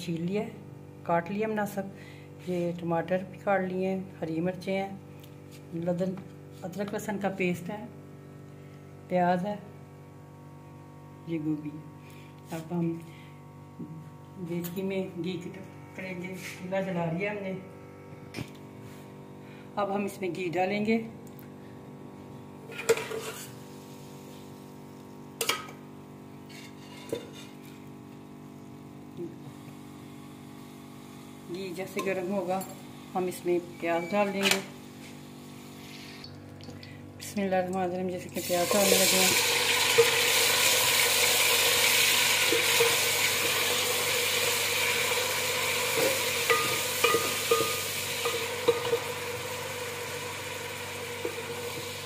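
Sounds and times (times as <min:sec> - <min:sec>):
steady low hum: 0:00.0 - 0:39.4
onions sizzling in a pot: 0:22.7 - 0:33.4, 0:38.4 - 0:52.0
spoon knocking on steel pot: 0:46.5 - 0:49.0.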